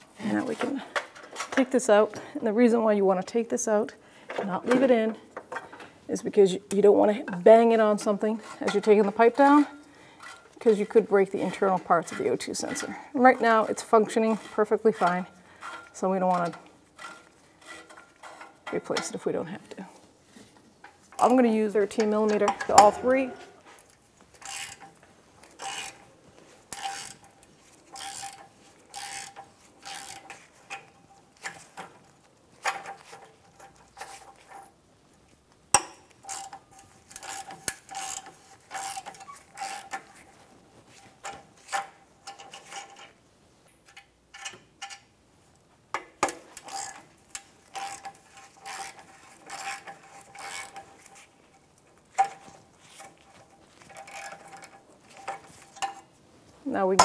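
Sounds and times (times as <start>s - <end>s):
ratchet wrench clicking: 24.4s - 24.8s, 26.7s - 27.2s, 27.9s - 30.3s, 37.2s - 39.9s, 47.7s - 50.8s.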